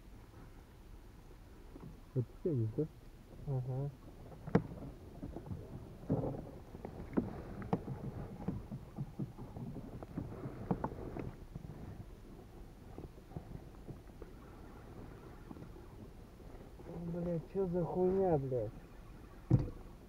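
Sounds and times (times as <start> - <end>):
objects knocking in a boat: 4.3 - 11.8, 19.4 - 20.0.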